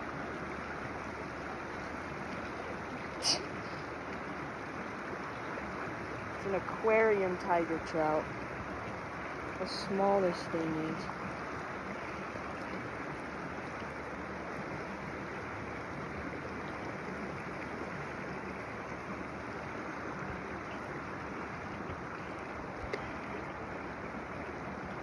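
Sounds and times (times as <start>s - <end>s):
creek water rushing: 0.0s - 25.0s.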